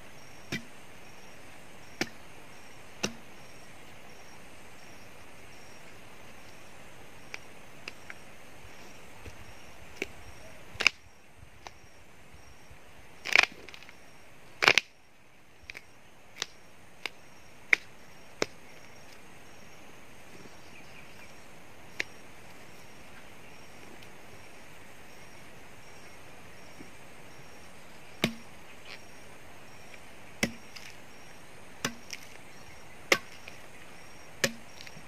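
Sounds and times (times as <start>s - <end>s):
tree trunk cracking: 13.2s - 13.9s, 14.6s - 14.9s.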